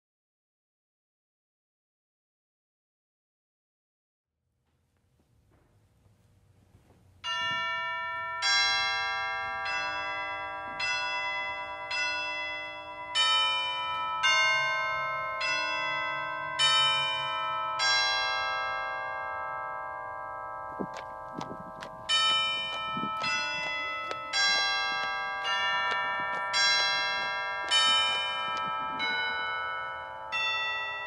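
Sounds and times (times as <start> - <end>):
church bells ringing: 7.2 - 31.0.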